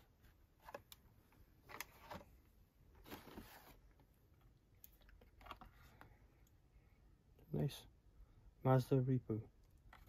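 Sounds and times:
cardboard and plastic rustling: 0.2 - 4.1.

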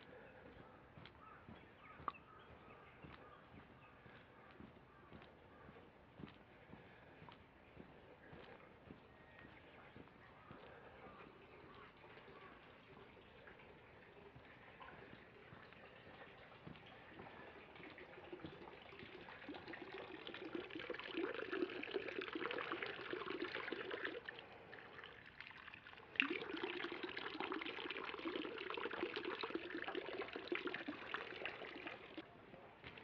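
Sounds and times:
water trickling into stone basin: 8.3 - 32.2.

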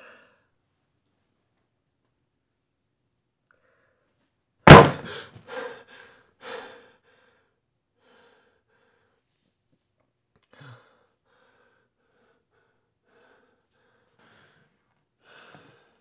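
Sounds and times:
loud bang: 4.7 - 5.1
man breathing sharply: 4.9 - 9.3, 10.5 - 16.0.

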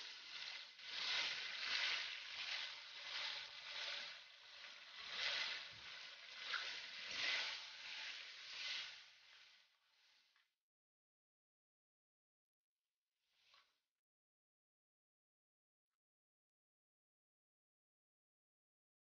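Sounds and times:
chicken sizzling in hot oil: 0.0 - 10.3.

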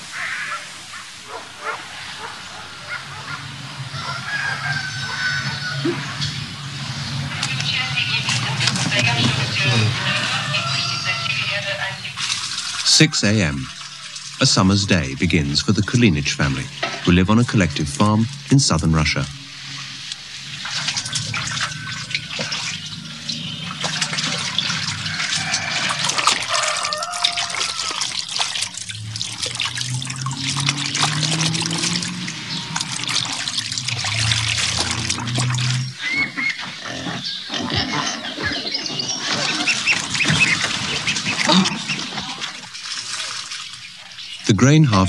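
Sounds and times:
farmyard animal calls: 0.0 - 45.0
water splashing in metal basin: 7.0 - 36.6, 39.0 - 44.4.

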